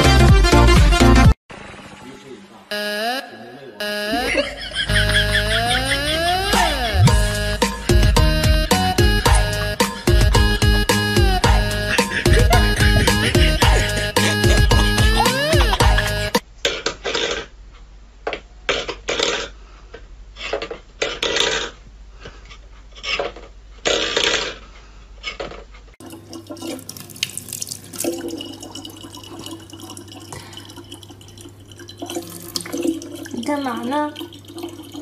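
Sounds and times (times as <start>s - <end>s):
tap water filling plastic bottle: 26.0s - 35.0s.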